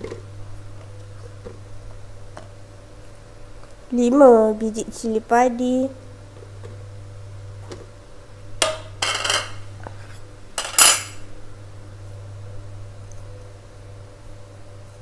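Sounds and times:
low steady hum: 0.0s - 15.0s
ceramic crockery clattering: 8.6s - 9.6s, 10.6s - 11.2s.

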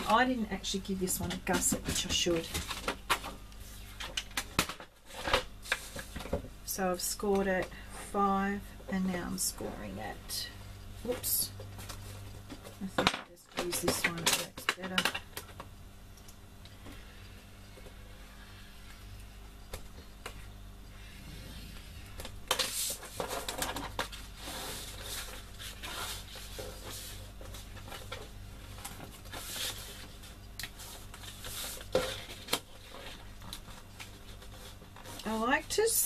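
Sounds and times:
card rustling and crackling: 21.8s - 35.3s.

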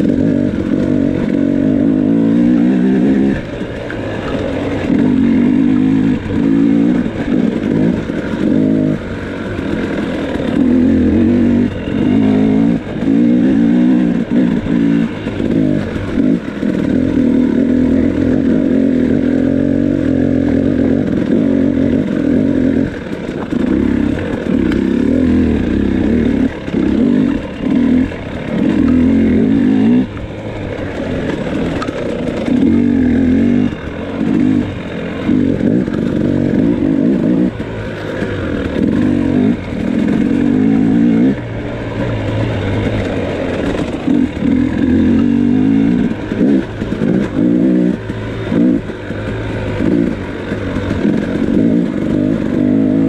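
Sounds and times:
two-stroke motorcycle engine revving: 0.0s - 53.0s.

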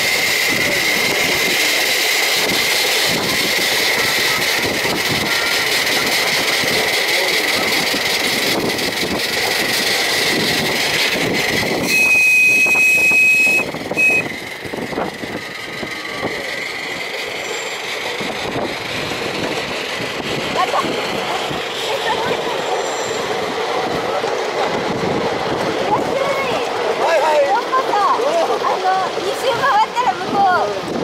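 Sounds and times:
miniature train rumbling on track: 0.0s - 31.0s
train whistle blasts: 11.8s - 14.4s.

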